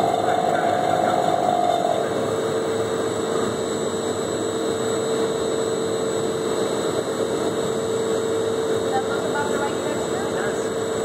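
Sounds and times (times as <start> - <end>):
mixer humming: 0.0 - 2.8
faint high whine: 0.0 - 11.0.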